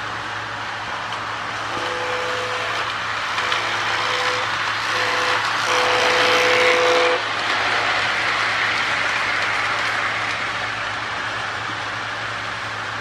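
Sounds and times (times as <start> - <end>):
toy train rolling on track: 1.1 - 12.0
two-note electronic train horn: 1.7 - 7.2.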